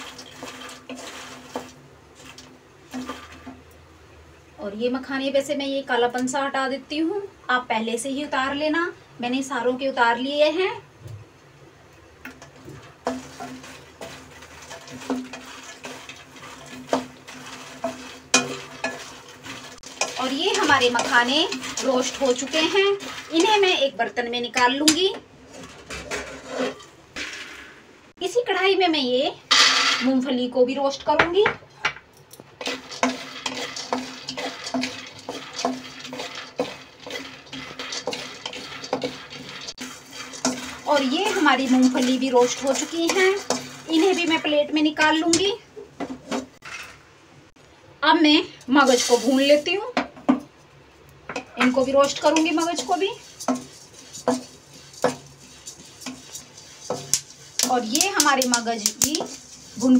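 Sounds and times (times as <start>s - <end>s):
seeds rustling and scraping in pan: 0.0s - 3.7s, 12.3s - 27.5s, 32.5s - 47.1s, 48.7s - 49.9s, 51.4s - 59.9s.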